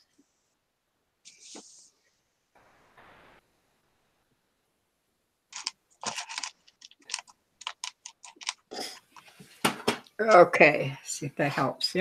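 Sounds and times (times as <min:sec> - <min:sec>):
clicks of small hard objects: 0:05.5 - 0:09.3.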